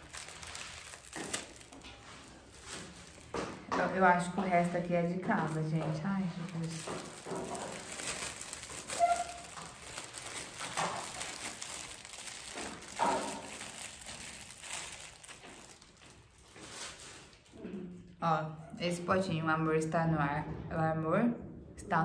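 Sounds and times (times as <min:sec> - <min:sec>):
plastic wrapping crinkling: 0:00.0 - 0:17.6.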